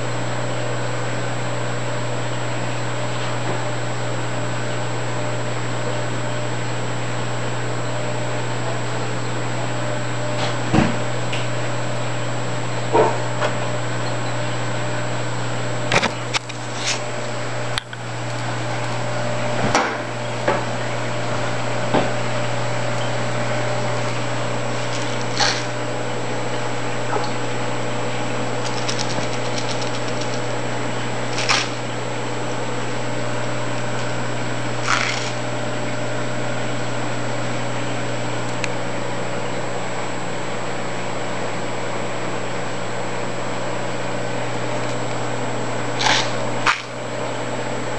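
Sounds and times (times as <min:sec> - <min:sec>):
aquarium equipment humming: 0:00.0 - 0:47.9.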